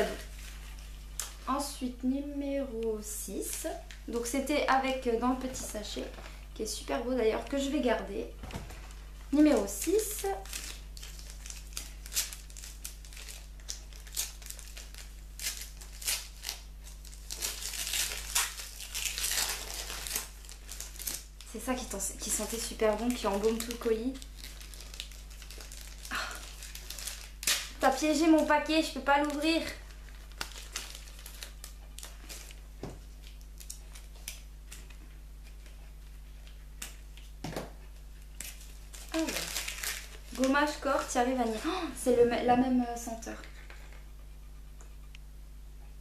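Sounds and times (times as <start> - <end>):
gift wrapping crinkling: 0.0 - 1.9, 8.5 - 37.4, 38.2 - 42.2
steady low hum: 0.0 - 46.0.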